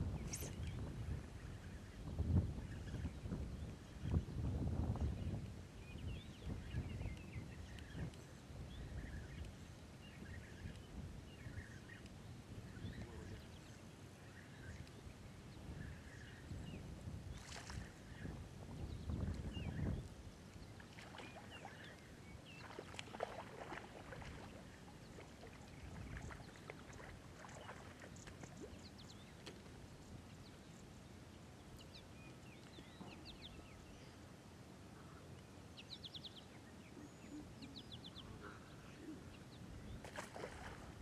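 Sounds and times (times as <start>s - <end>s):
bird calls: 19.1s - 29.7s, 30.4s - 34.2s, 34.9s - 41.0s.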